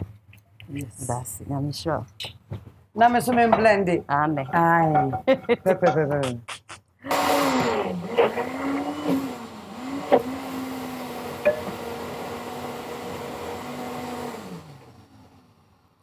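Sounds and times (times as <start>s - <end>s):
blender motor running: 7.0s - 15.7s.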